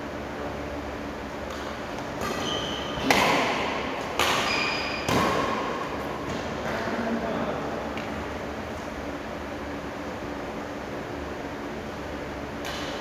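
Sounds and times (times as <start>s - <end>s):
short high squeaks: 2.3s - 3.0s, 4.4s - 5.1s.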